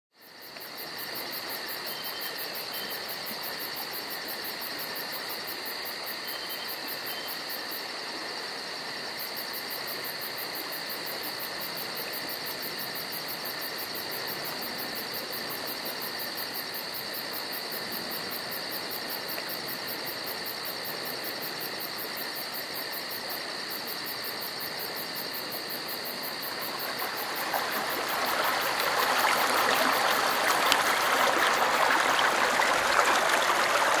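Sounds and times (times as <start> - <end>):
insects chirring: 0.2 - 34.0
stream water rushing: 26.3 - 34.0.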